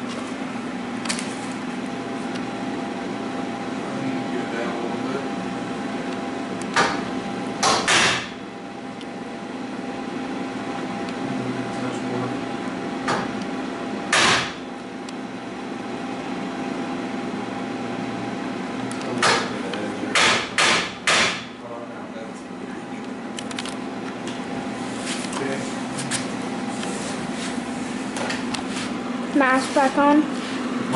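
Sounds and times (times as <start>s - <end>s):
steady shop hum: 0.0s - 30.9s.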